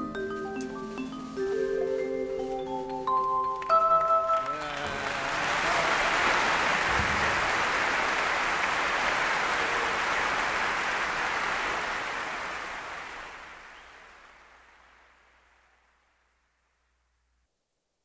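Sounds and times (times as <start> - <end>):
audience applause: 3.6 - 15.9.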